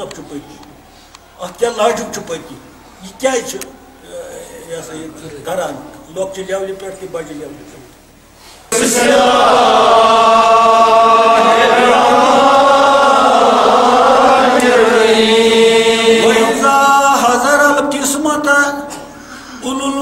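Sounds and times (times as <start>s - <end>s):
man chanting: 16.2s - 20.0s.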